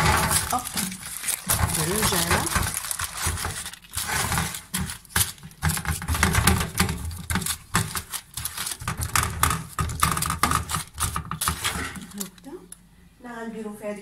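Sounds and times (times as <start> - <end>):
hands pressing dough in tray: 0.0 - 12.5
taps clicks and rustles: 0.0 - 12.8.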